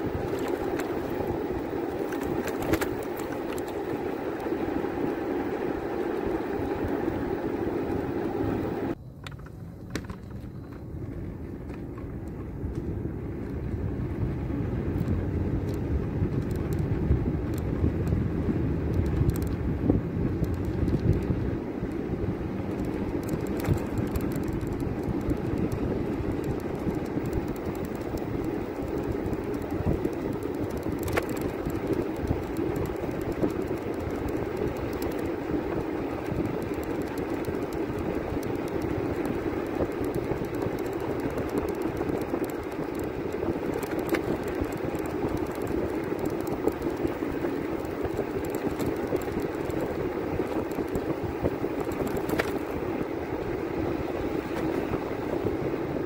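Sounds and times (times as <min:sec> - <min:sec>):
road and wind rumble: 0:00.0 - 0:56.0
faint clicks: 0:00.3 - 0:04.8, 0:18.9 - 0:19.6, 0:22.7 - 0:53.1.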